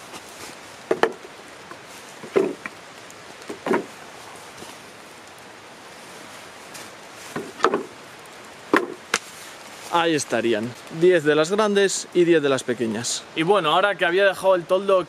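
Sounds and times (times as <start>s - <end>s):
wooden shingles clacking: 0.9s - 1.3s, 2.2s - 2.8s, 3.4s - 4.0s, 7.3s - 8.0s, 8.7s - 9.3s.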